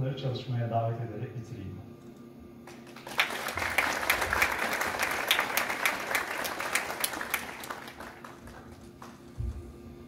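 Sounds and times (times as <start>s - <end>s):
audience applauding: 2.7s - 9.4s.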